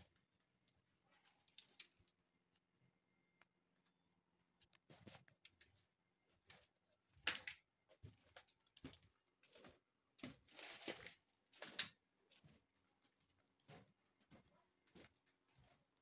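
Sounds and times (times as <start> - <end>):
footsteps scuffing on floor: 13.6 - 15.8.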